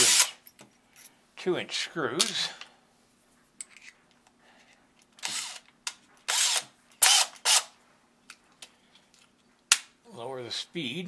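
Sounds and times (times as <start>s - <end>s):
drill chuck ratcheting: 0.0s - 0.4s, 5.2s - 5.7s, 6.3s - 7.7s.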